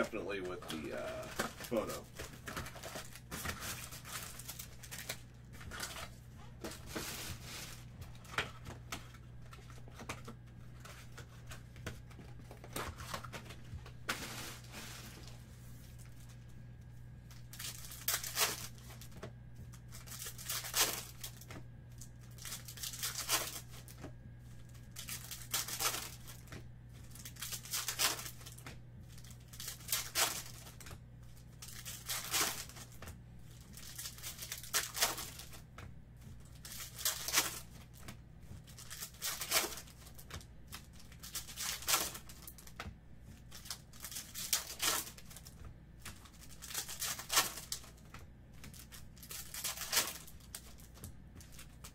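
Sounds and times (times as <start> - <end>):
foil packs ripping and crinkling: 0.0 - 15.4, 17.3 - 19.2, 19.8 - 24.0, 24.6 - 26.5, 27.1 - 35.6, 36.5 - 38.1, 38.7 - 42.8, 43.4 - 51.9.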